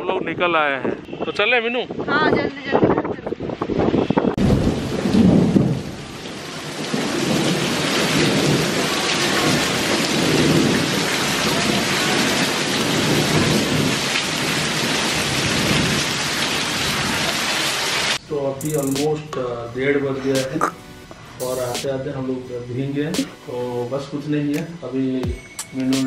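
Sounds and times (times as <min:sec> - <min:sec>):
heavy rain pouring: 0:04.2 - 0:19.0, 0:20.4 - 0:24.3.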